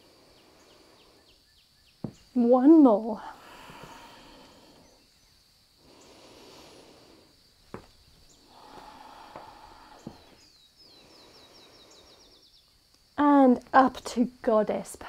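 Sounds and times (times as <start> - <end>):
light knocks: 2.0 - 2.3
soft rustling on a mat: 6.7 - 10.5.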